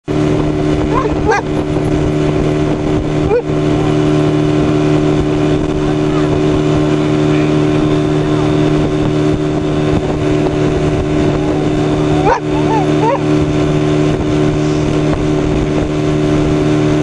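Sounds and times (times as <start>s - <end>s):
outboard motor running: 0.0s - 17.0s
dog howling: 0.9s - 1.6s, 11.2s - 13.3s.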